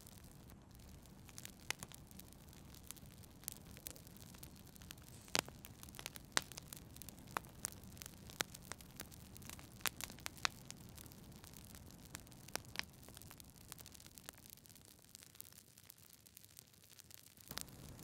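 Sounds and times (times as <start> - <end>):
wood fire crackling: 0.0 - 18.0.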